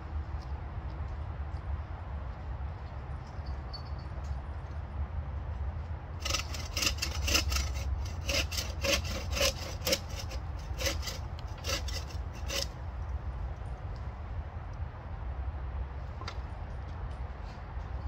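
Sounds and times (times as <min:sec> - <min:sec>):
bow saw cutting wood: 0:06.2 - 0:12.8.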